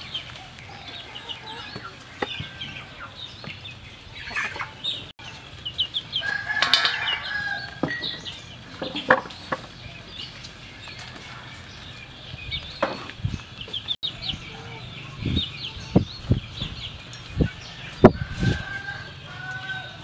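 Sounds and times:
chickens clucking: 0.0s - 20.0s
rooster crowing: 6.2s - 8.3s, 17.6s - 20.0s.

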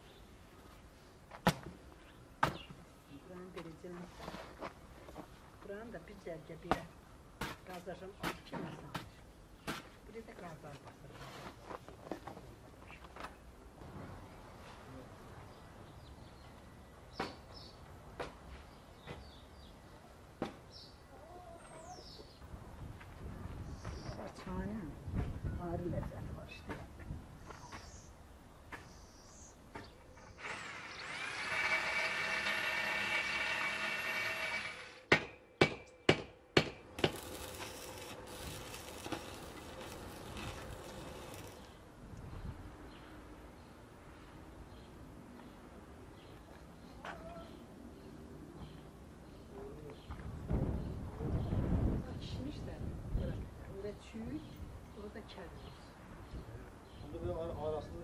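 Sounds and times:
small birds chirping: 2.0s - 3.6s, 18.5s - 22.6s, 23.6s - 24.8s, 26.5s - 31.2s
welding arc crackling: 36.9s - 41.8s.

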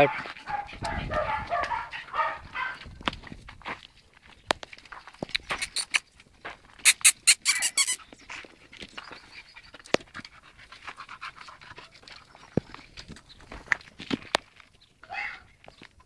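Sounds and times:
short sharp dog sounds: 5.4s - 6.0s, 6.9s - 8.0s.

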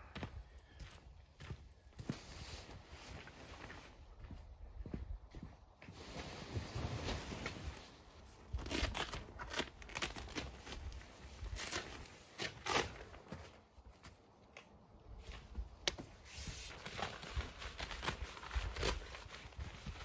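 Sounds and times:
nylon tent fabric rustling: 5.9s - 13.6s, 16.2s - 20.0s.

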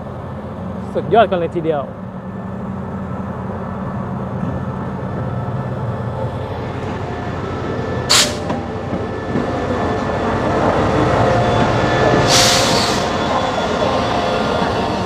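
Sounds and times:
locomotive engine hum: 0.0s - 15.0s
air hissing: 8.1s - 8.5s, 12.3s - 13.2s.

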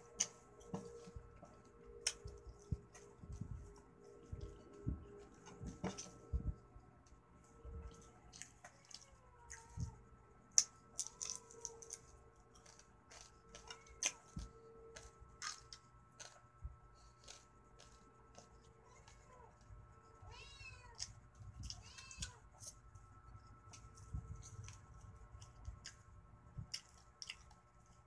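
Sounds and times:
chewing: 7.8s - 9.9s, 10.6s - 19.7s, 24.4s - 26.0s, 26.6s - 28.0s.

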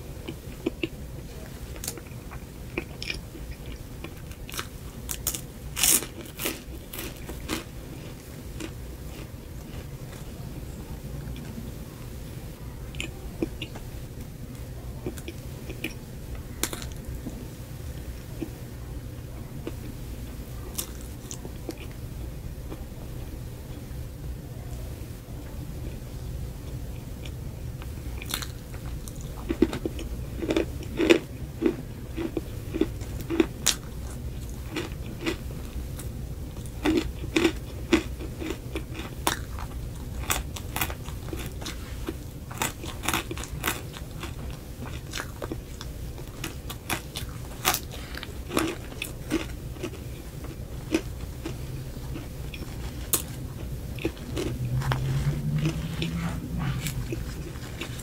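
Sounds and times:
crunching and chewing: 0.2s - 11.6s, 12.9s - 17.4s, 19.6s - 20.0s, 20.6s - 22.9s, 26.6s - 58.0s
low hum rising in pitch: 53.4s - 58.0s.

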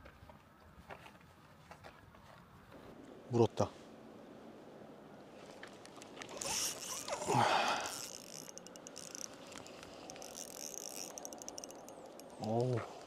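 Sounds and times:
fishing line rushing: 5.9s - 13.0s
fishing reel ticking: 6.3s - 13.0s.

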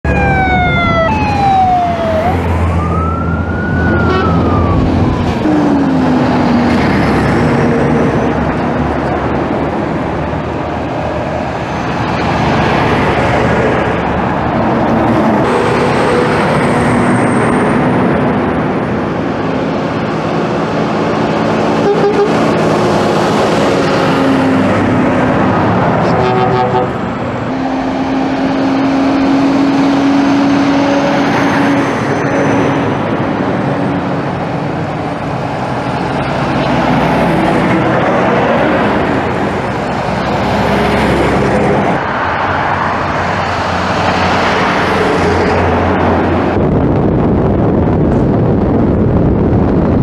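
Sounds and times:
siren wailing: 0.0s - 6.5s
heavy trucks passing: 0.0s - 50.0s.

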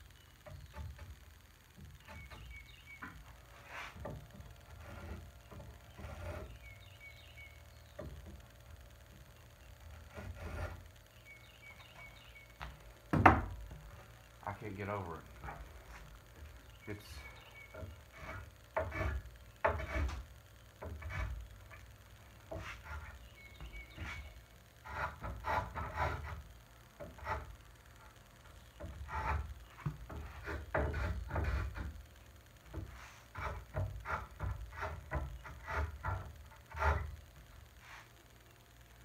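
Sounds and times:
hand plane cutting wood: 3.6s - 6.9s, 10.0s - 10.8s, 17.8s - 21.8s, 22.5s - 26.4s, 28.8s - 32.0s, 32.8s - 37.2s.

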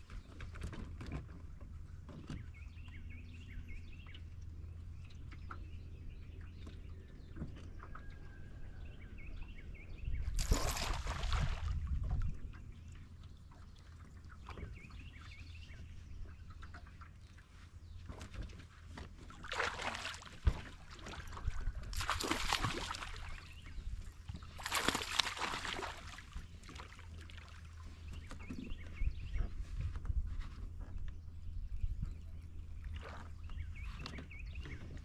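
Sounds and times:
fish splashing at water surface: 10.4s - 11.8s, 19.4s - 23.6s, 24.5s - 27.5s.

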